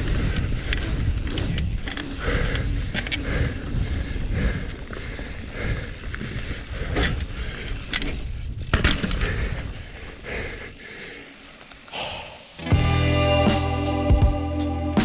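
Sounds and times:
bike clacking and rattling: 0.0s - 10.5s
wind rumble on microphone: 0.0s - 10.6s
bike tyre noise on dirt: 0.0s - 12.8s.

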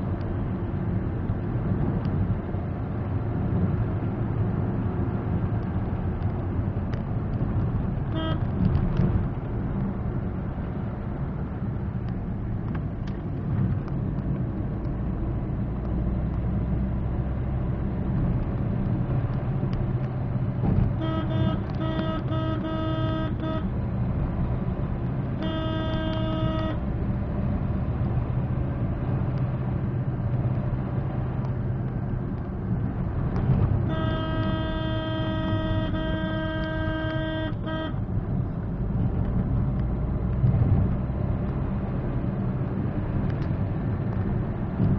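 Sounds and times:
car engine and road rumble: 0.0s - 44.9s
car horn honking: 8.0s - 8.5s, 20.9s - 23.7s, 25.4s - 26.8s, 33.8s - 38.0s.

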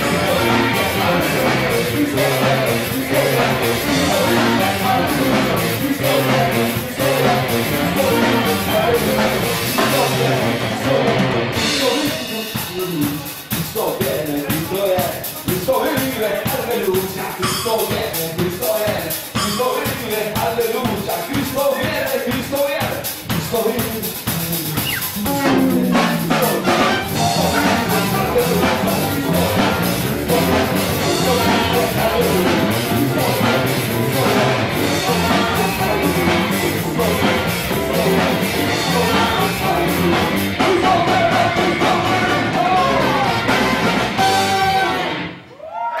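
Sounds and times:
person singing: 0.0s - 13.2s, 24.2s - 45.0s
live band playing: 0.0s - 45.5s.

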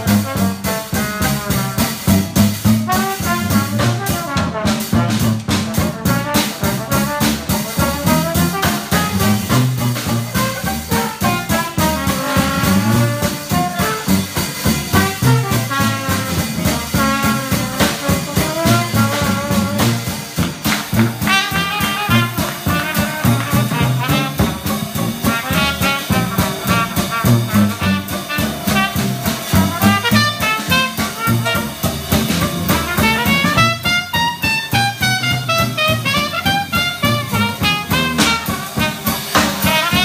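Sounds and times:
drums keeping beat: 0.0s - 40.0s
trombone lead: 0.0s - 40.0s
tuba: 0.0s - 40.0s
cornet solo: 8.4s - 40.0s.

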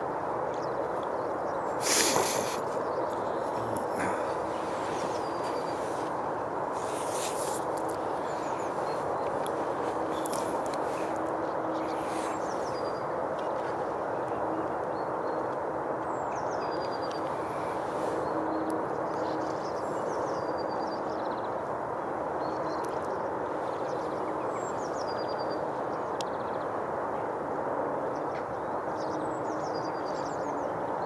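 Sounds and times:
outdoor rushing background noise: 0.0s - 31.0s
small bird calling: 1.6s - 6.2s.

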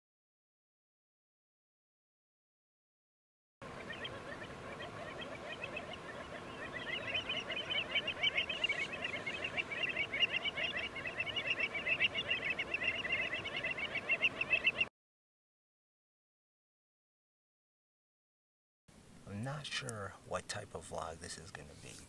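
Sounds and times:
flock of waterbirds calling: 3.6s - 14.9s.

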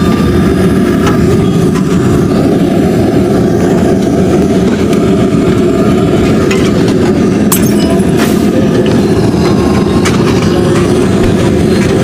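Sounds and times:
loud low rumble: 0.0s - 12.0s.

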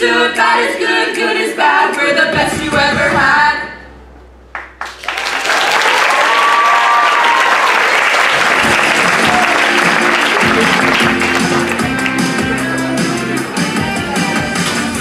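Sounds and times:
audience applauding: 4.5s - 12.5s
person whooping: 5.7s - 7.8s, 9.1s - 9.8s
music playing: 8.2s - 15.0s.

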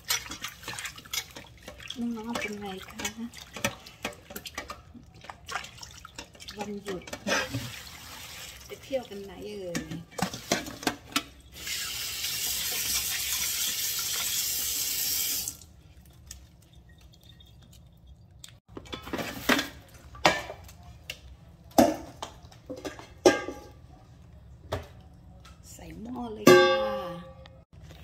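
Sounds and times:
bowl knocking and clattering: 21.7s - 23.8s.

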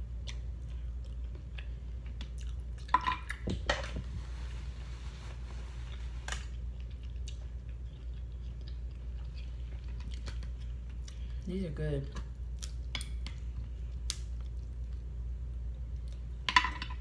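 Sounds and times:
steady low hum: 0.0s - 17.0s
chewing seafood: 0.1s - 2.9s, 6.4s - 11.4s.

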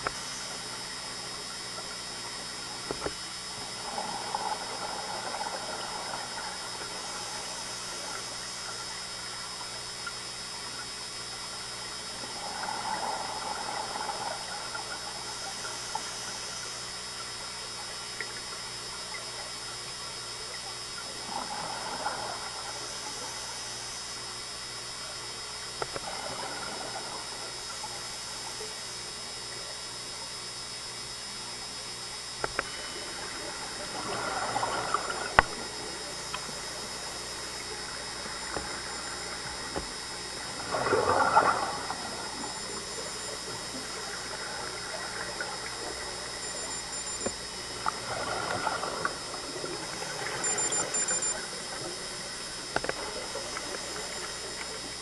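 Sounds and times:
regulator bubbles gurgling: 0.0s - 55.0s
underwater hiss: 3.5s - 8.4s, 12.2s - 16.8s, 21.2s - 23.9s, 32.5s - 46.3s.

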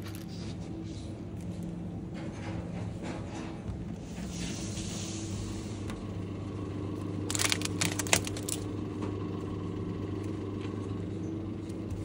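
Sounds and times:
refrigerated display cases humming: 0.0s - 12.0s
crackling and clicks: 7.3s - 8.6s.

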